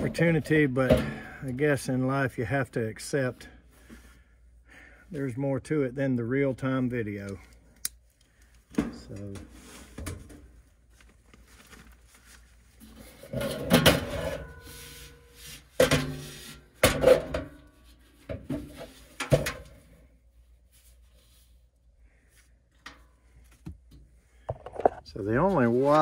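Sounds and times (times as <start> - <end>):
metal clunks and scrapes: 0.0 - 1.6, 12.8 - 19.9.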